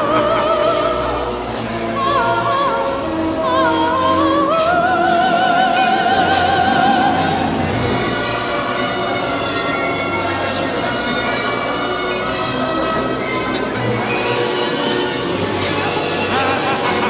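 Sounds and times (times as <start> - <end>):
operatic voice singing: 0.0 - 7.9
eerie ride music: 0.0 - 17.0.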